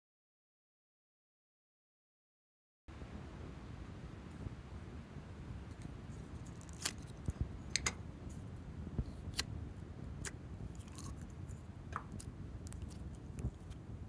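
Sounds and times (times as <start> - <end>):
low steady background noise: 2.9 - 14.0.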